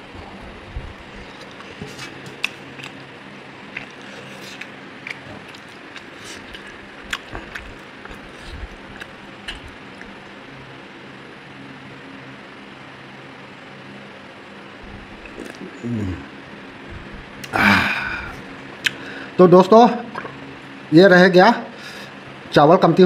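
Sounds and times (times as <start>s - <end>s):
faint steady hum: 0.0s - 23.0s
wet chewing smacks: 1.4s - 3.0s, 3.7s - 10.2s, 15.2s - 15.7s.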